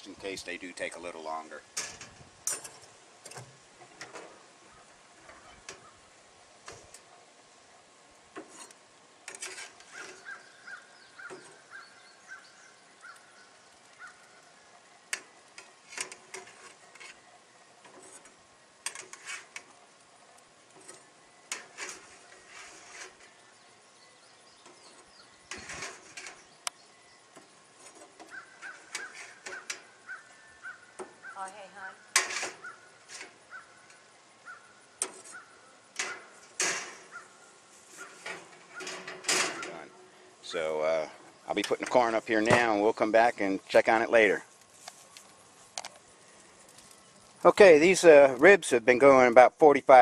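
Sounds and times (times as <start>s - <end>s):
metal spatula scraping a pan: 8.4s - 10.5s, 15.6s - 17.2s, 17.9s - 19.7s, 20.8s - 23.4s, 24.7s - 26.5s, 27.8s - 29.9s, 32.1s - 33.4s.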